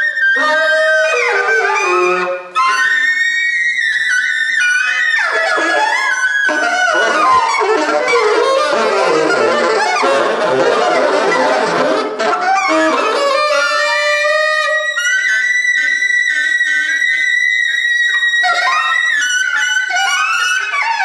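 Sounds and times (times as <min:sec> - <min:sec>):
saxophones improvising: 0:04.9 - 0:14.0.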